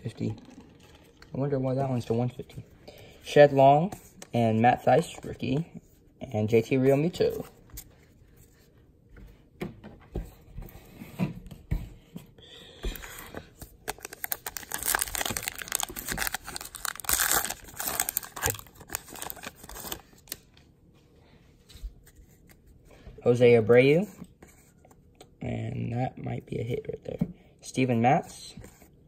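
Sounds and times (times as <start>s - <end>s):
card pack wrapper tearing: 13.8s - 20.4s.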